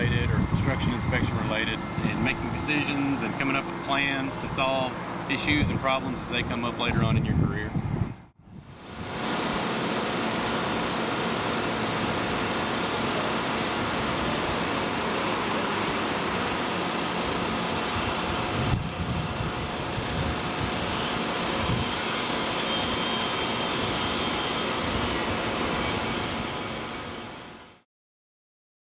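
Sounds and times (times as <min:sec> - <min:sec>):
highway traffic rushing: 0:00.0 - 0:21.9.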